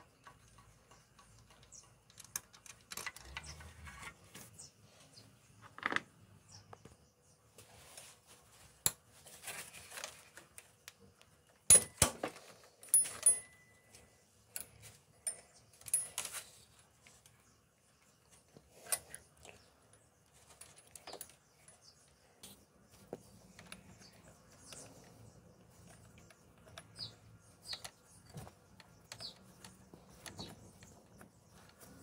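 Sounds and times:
metallic tool clicks and clinks: 12.8 - 16.4.

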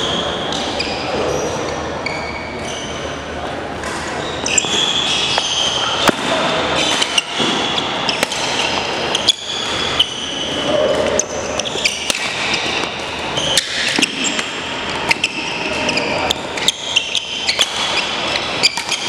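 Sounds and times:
sneakers squeaking on wooden floor: 0.0 - 3.3, 4.1 - 19.0
rackets striking shuttlecock: 3.8 - 10.3, 11.2 - 19.0.

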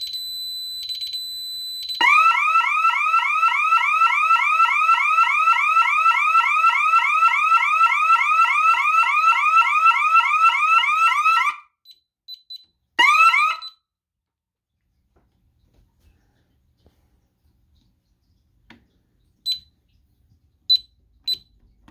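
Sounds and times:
alarm siren yelping: 0.0 - 11.7, 13.0 - 13.8
faint keypad beeps: 11.9 - 12.7, 19.5 - 19.7.

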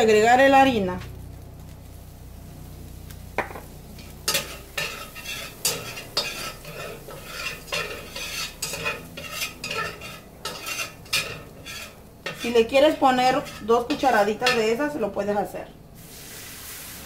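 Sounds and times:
sizzling in pan: 0.0 - 17.0
metal spatula scraping skillet: 3.9 - 14.9.

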